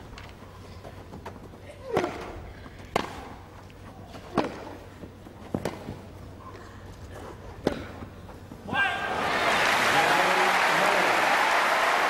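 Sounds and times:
tennis racket hitting ball: 1.9s - 3.4s, 4.2s - 4.8s, 5.5s - 6.0s, 7.6s - 8.0s.

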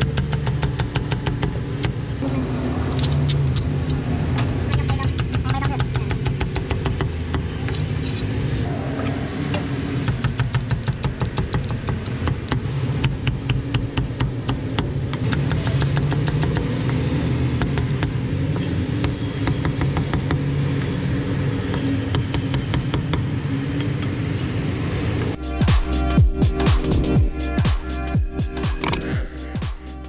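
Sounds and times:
cleaver chopping on wooden block: 0.0s - 2.0s, 4.7s - 7.9s, 10.0s - 18.2s, 28.8s - 29.0s.

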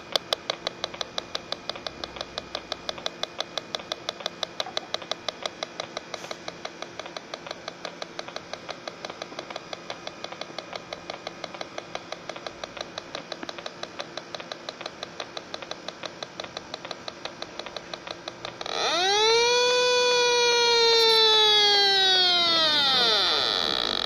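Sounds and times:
leak detector beeping rapidly: 6.8s - 24.0s.

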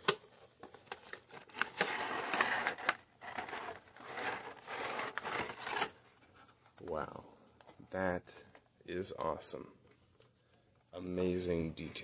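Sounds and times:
cardboard and plastic rustling: 0.0s - 7.8s.

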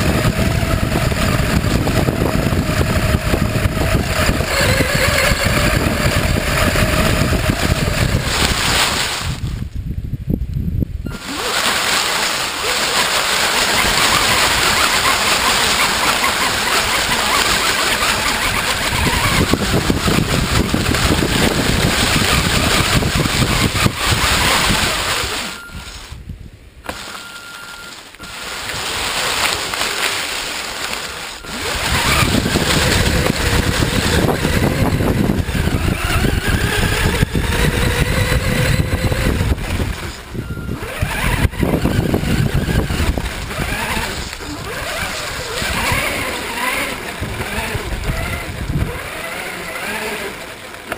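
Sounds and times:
rc car drive whine: 0.0s - 9.7s, 11.1s - 26.2s, 26.8s - 50.9s
rustle and crackle of leaves: 7.5s - 9.9s, 11.1s - 26.3s, 26.9s - 34.5s, 39.5s - 50.9s.

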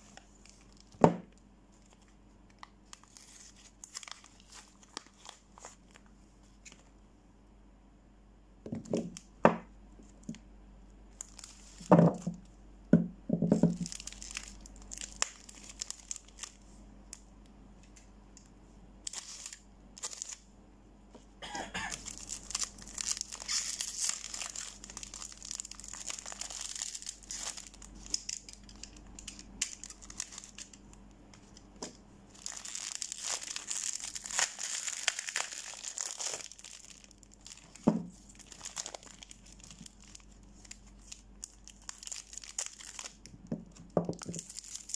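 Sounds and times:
soap wrappers crinkling and tearing: 1.8s - 6.9s, 11.2s - 12.4s, 13.6s - 17.2s, 19.0s - 20.4s, 21.9s - 44.9s.

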